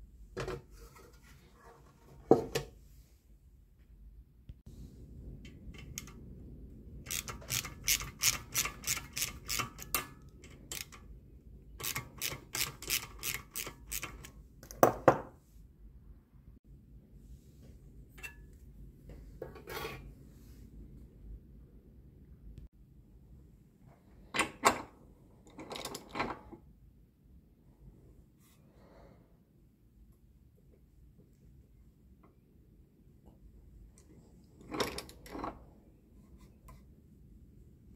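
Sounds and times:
metal ratchet clicking: 7.1s - 11.0s, 11.8s - 14.3s.

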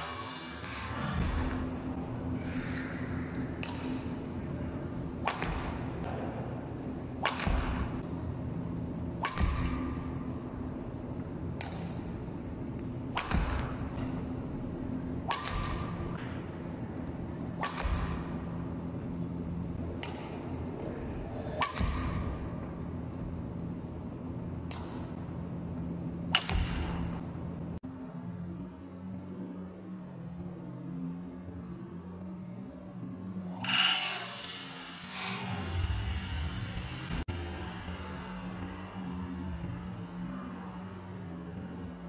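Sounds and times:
steady low hum: 0.0s - 42.0s
racket smashing shuttlecock: 5.2s - 5.8s, 9.2s - 9.8s, 13.1s - 14.1s, 15.2s - 16.4s, 17.6s - 18.3s, 21.6s - 22.2s, 26.3s - 26.9s.

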